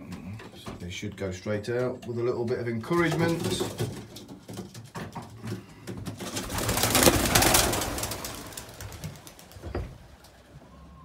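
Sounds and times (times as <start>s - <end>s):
pigeon wings flapping: 3.0s - 10.4s.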